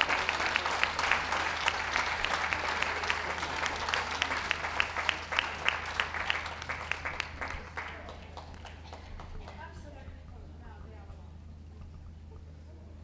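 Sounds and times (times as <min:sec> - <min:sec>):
crowd applauding: 0:00.0 - 0:09.7.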